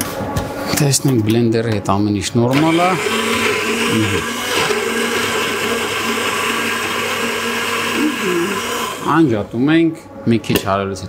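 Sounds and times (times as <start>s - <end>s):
blender motor whirring: 2.5s - 9.3s.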